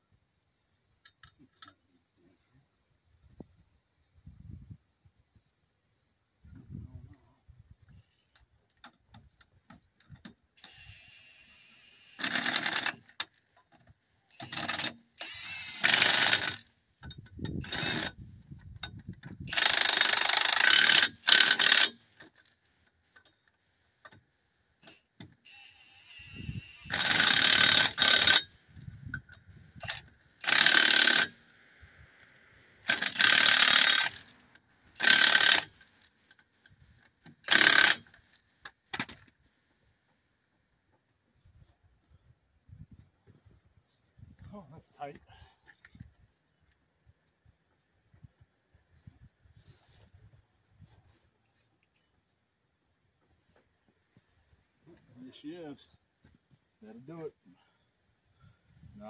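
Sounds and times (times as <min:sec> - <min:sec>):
impact wrench whirring: 0:10.6 - 0:13.0, 0:14.4 - 0:16.7, 0:17.6 - 0:18.2, 0:19.4 - 0:22.0, 0:25.6 - 0:28.5, 0:29.8 - 0:31.4, 0:32.8 - 0:34.3, 0:35.0 - 0:35.8, 0:37.4 - 0:38.1.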